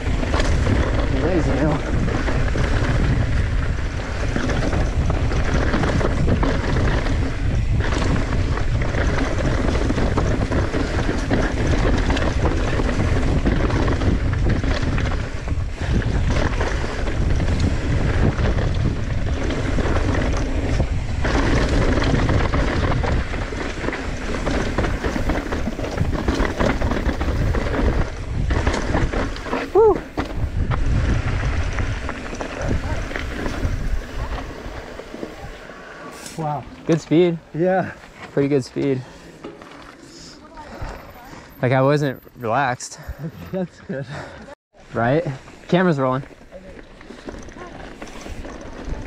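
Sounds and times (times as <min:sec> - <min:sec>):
wind rushing over microphone: 0:00.0 - 0:36.1
bike tyres rattling over dirt trail: 0:00.0 - 0:49.0.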